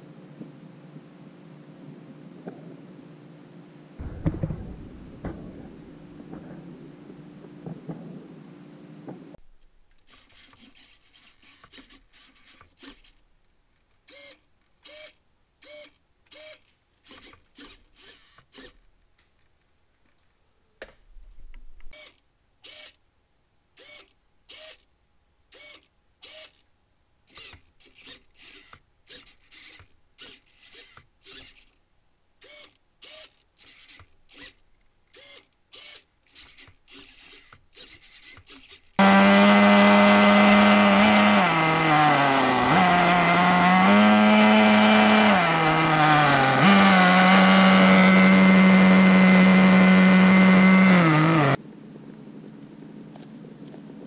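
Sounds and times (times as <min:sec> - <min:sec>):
small servos whirring: 0:10.0 - 0:13.3, 0:14.0 - 0:18.9, 0:21.9 - 0:23.0, 0:23.7 - 0:24.9, 0:25.5 - 0:51.6.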